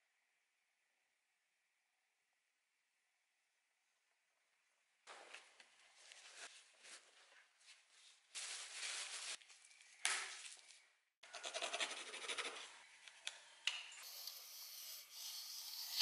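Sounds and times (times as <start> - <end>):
paper rustling and crinkling: 5.1 - 10.8
pencil scratching on wood: 11.3 - 12.7.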